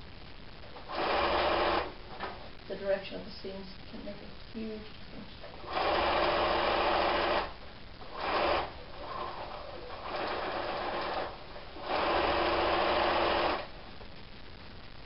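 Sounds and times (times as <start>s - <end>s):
sewing machine stitching: 0.9s - 1.9s, 5.6s - 13.7s.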